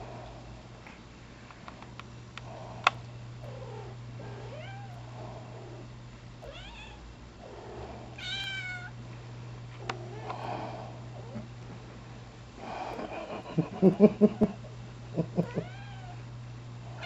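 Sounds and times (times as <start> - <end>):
cat meowing: 8.2 - 8.9.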